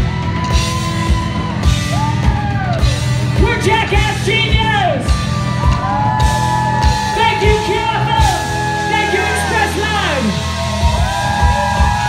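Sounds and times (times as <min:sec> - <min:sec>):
bass guitar: 0:00.0 - 0:12.0
drum kit beat: 0:00.0 - 0:12.0
man singing and yelling: 0:07.1 - 0:10.4.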